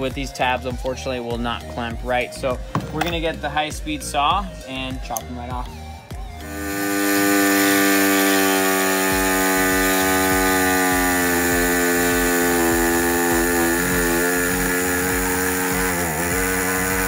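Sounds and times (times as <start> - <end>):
electric saw cutting plastic: 6.0 - 17.0.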